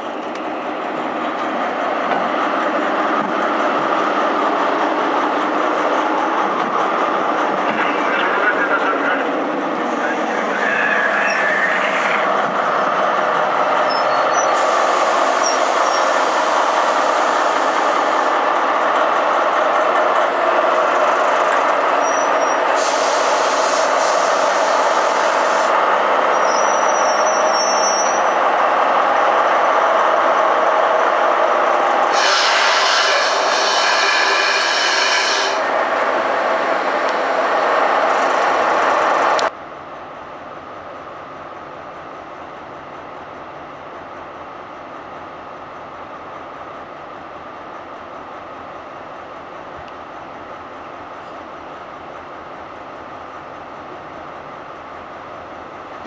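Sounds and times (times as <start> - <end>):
locomotive engine and fans: 0.0 - 56.0
hissing air: 14.4 - 18.3, 22.6 - 25.8, 32.0 - 35.8.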